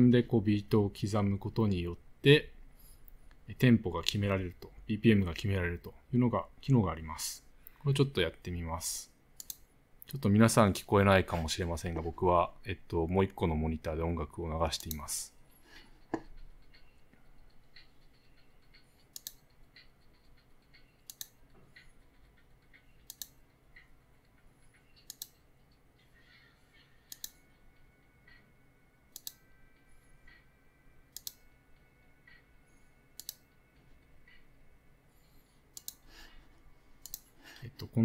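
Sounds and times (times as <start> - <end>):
faint regular ticking: 9.1 - 10.2, 12.5 - 36.4, 37.0 - 38.0
computer mouse clicking: 9.4 - 10.2, 14.8 - 15.1, 16.1 - 23.9, 25.0 - 25.4, 27.0 - 27.4, 29.1 - 29.4, 31.1 - 31.5, 33.2 - 33.6, 35.7 - 36.4, 37.0 - 37.4.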